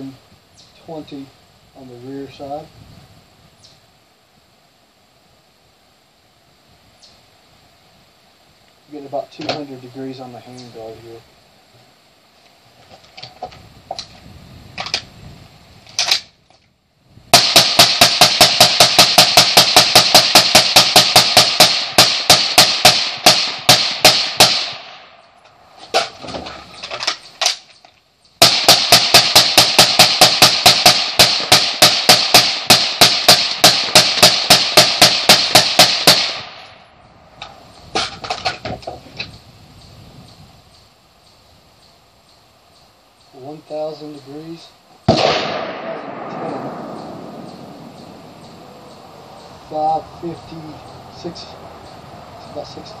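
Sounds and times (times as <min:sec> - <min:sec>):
rifle handling clicks: 0:15.9 - 0:16.7
suppressed rifle rapid fire: 0:17.3 - 0:25.0, 0:28.4 - 0:36.6, 0:45.1 - 0:47.4.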